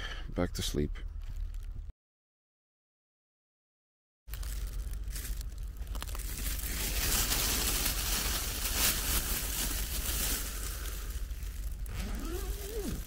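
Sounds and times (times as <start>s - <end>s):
steady low rumble: 0.0s - 1.9s, 4.3s - 13.0s
foil blanket crinkling: 4.3s - 13.0s.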